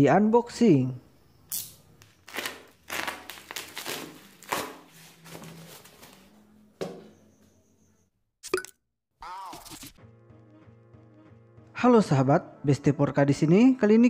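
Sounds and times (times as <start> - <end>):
plastic parcel crinkling and tearing: 2.0 - 6.3.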